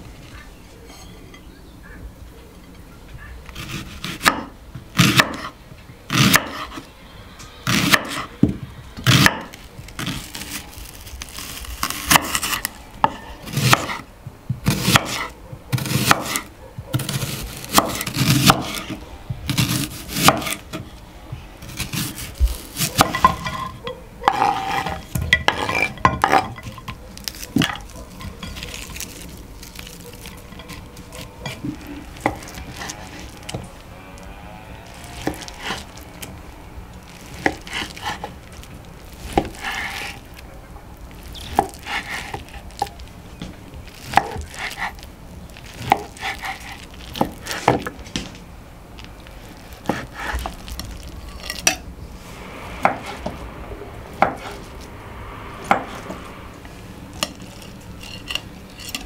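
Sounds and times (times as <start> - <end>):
knife scraping strokes: 14.7 - 21.0, 21.6 - 40.4, 41.1 - 43.0, 43.9 - 47.9, 55.6 - 59.0.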